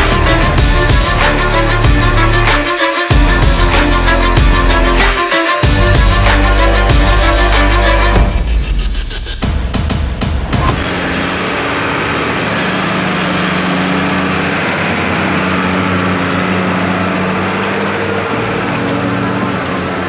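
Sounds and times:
tractor diesel engine under load: 11.0 - 20.0.

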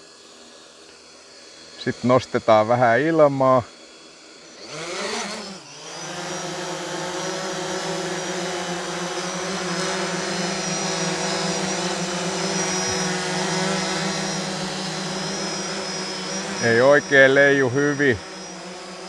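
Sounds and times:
drone propellers whirring: 0.0 - 19.0.

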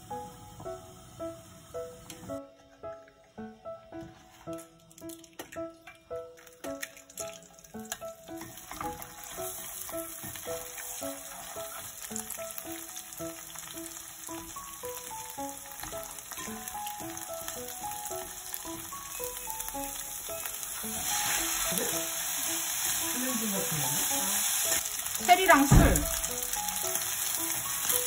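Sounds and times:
light plucked background music: 0.0 - 28.0
food sizzling in oil: 7.4 - 28.0
chopsticks stirring in pan: 7.9 - 17.3.

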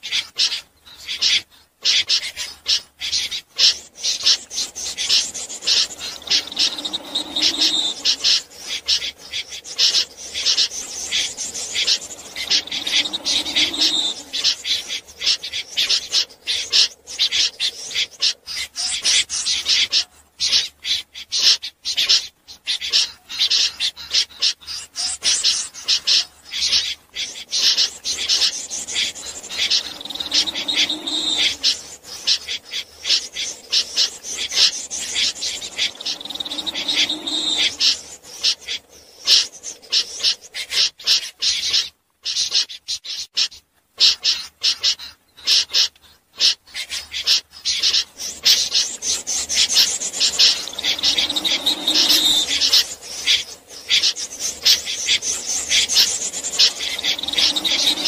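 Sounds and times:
snipe calling rasping notes: 26.6 - 40.4, 47.1 - 58.0.

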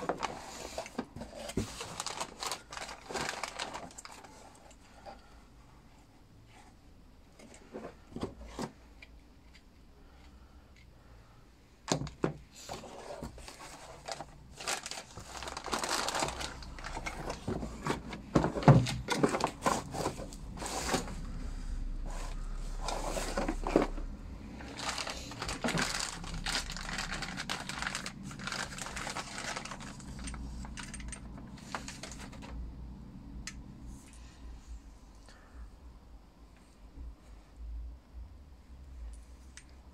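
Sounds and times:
packaging rustling and crinkling: 0.0 - 5.2, 11.9 - 32.6.

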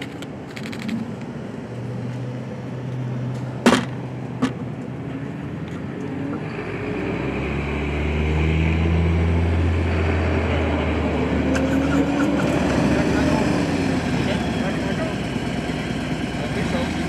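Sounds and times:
vehicles driving past: 0.0 - 17.0
deep engine drone: 5.1 - 17.0.

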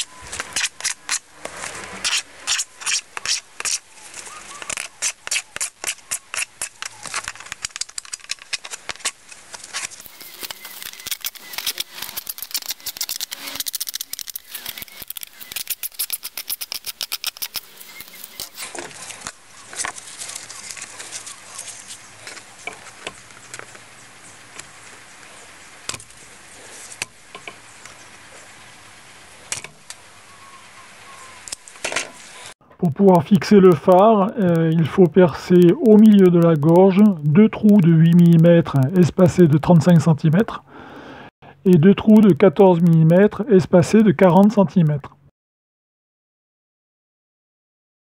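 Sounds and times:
shears snipping plastic: 0.0 - 23.7.

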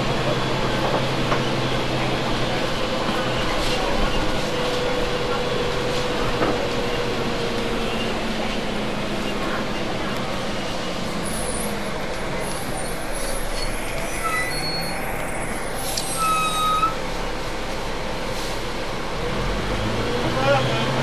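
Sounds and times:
diesel bus idling: 0.0 - 21.0
short high squeals: 12.7 - 17.0.

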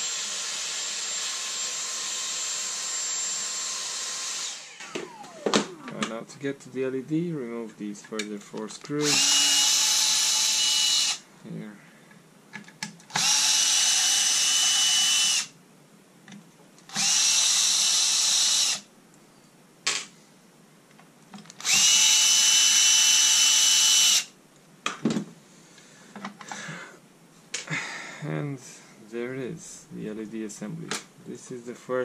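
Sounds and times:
power drill motor whine: 0.0 - 6.2, 9.0 - 11.2, 13.1 - 15.5, 16.9 - 18.8, 21.6 - 24.3.

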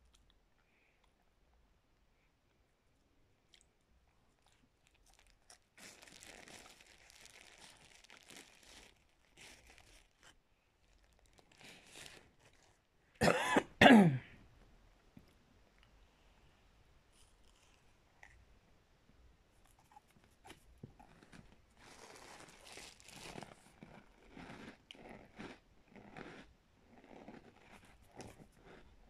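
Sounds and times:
chewing cracker crunching: 3.5 - 12.8, 19.7 - 29.0
person coughing: 13.2 - 14.4.

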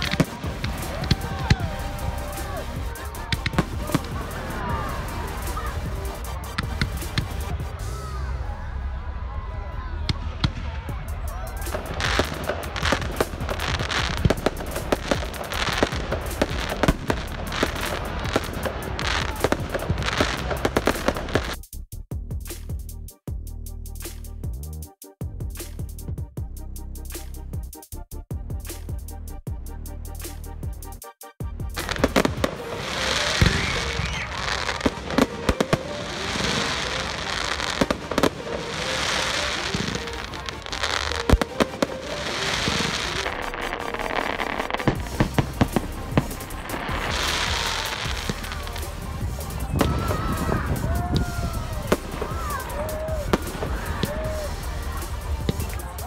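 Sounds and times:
fireworks bangs: 0.0 - 8.4, 10.0 - 21.6, 31.8 - 56.0
fireworks hissing: 0.0 - 8.4, 10.4 - 21.6, 31.8 - 56.0.

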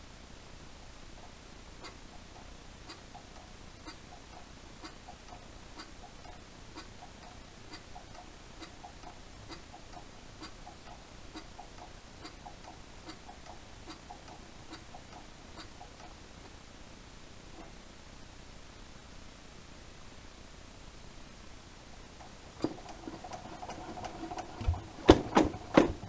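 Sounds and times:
engine mechanism clicking: 22.6 - 26.0.

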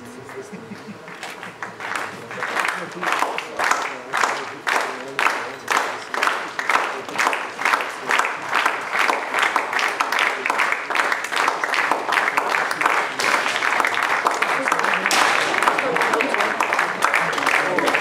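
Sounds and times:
spectators clapping in unison: 0.0 - 18.0.

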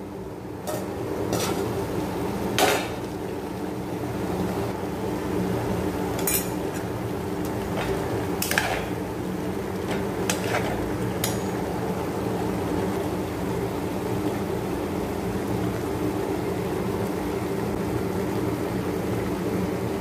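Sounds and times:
spatula stirring gravy in a pan: 10.0 - 11.4.

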